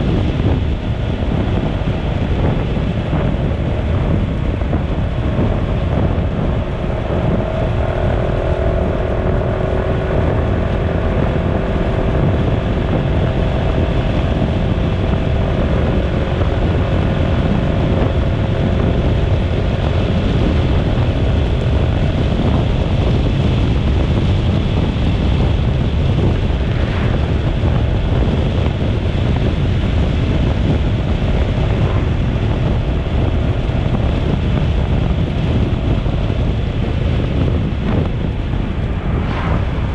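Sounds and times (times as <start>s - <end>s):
road and motor noise: 0.0s - 39.9s
wind buffeting microphone: 0.0s - 39.9s
faint hum dropping in pitch: 25.4s - 29.8s, 30.8s - 39.9s.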